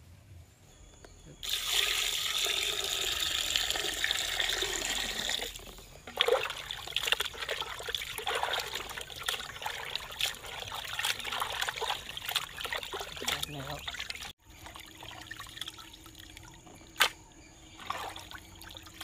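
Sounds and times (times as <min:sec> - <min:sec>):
water pouring into a clay pot: 0:01.4 - 0:16.6
hands splashing water: 0:06.1 - 0:17.2, 0:17.8 - 0:19.0.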